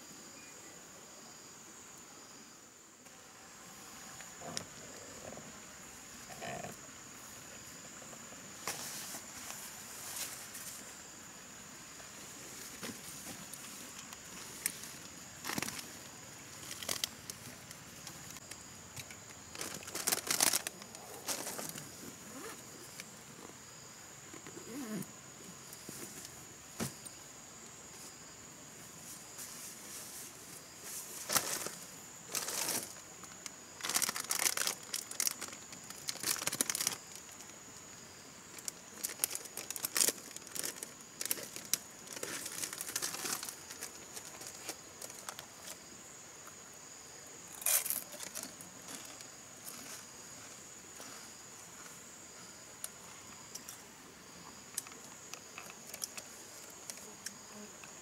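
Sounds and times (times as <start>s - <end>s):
high insect drone: 0.0s - 58.0s
chip bag crinkling: 19.5s - 21.8s, 33.8s - 37.2s, 38.6s - 45.3s.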